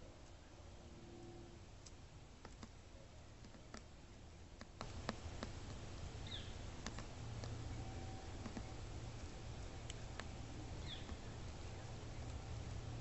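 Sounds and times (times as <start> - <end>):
woodpecker pecking: 2.4 - 2.8, 3.4 - 3.9, 4.6 - 12.9.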